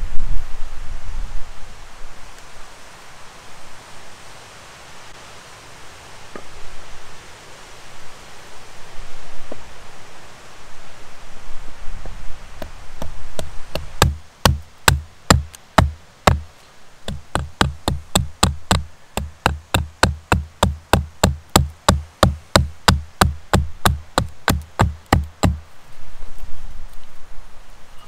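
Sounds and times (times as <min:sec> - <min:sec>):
hatchet knocking on wood: 0:12.6 - 0:16.4, 0:17.1 - 0:25.6.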